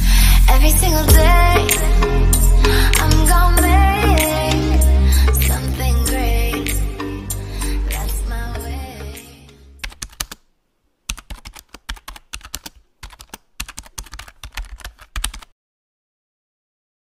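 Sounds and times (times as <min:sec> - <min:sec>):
keyboard typing: 0:09.8 - 0:10.5, 0:11.1 - 0:15.5.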